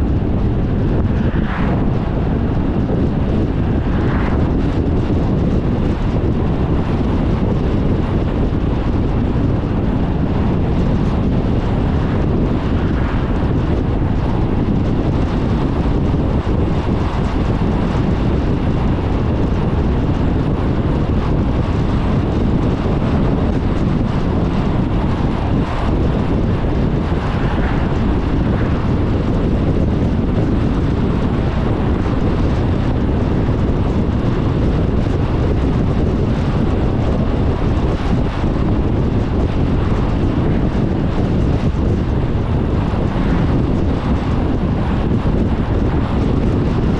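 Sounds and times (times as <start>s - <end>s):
tyre and wind noise: 0.0s - 46.9s.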